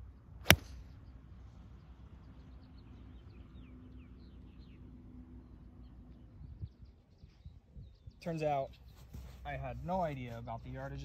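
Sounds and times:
golf iron striking ball: 0:00.4 - 0:00.8.

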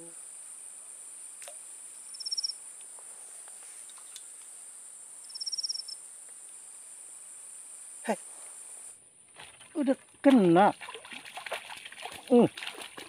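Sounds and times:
insects shrilling: 0:00.0 - 0:10.5
insect pulsed trills: 0:00.0 - 0:13.0.

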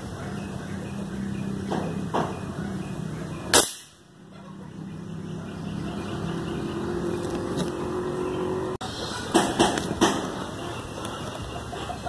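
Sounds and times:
airgun shot: 0:03.5 - 0:04.0.

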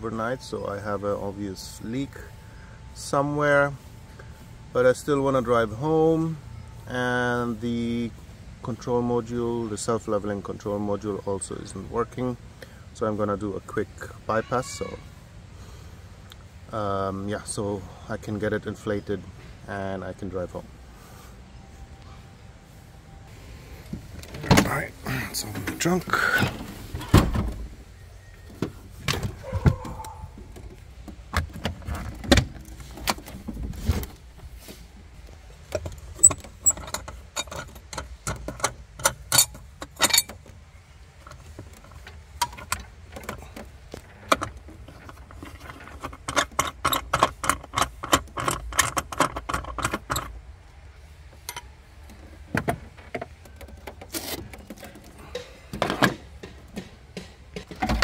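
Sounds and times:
clicks knocks and rattles: 0:41.2 - 0:50.4, 0:51.4 - 0:58.0.

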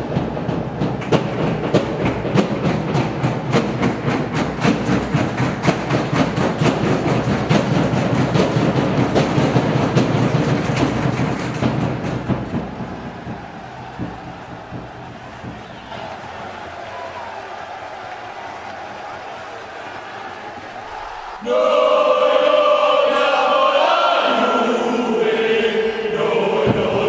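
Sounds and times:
rhythmic soundtrack with sharp beats: 0:00.0 - 0:21.4.

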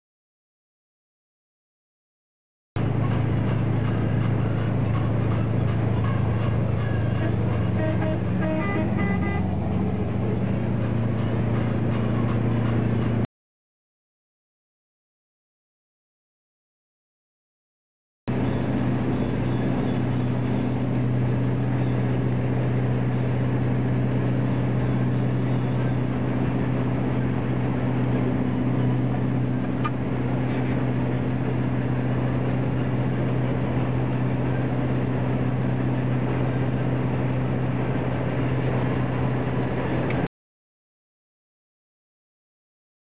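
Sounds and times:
lorry engine and road drone: 0:02.8 - 0:13.3, 0:18.3 - 0:40.3.

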